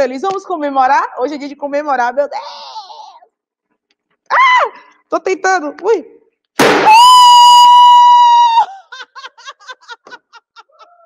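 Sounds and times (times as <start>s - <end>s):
people laughing: 8.6s - 11.0s.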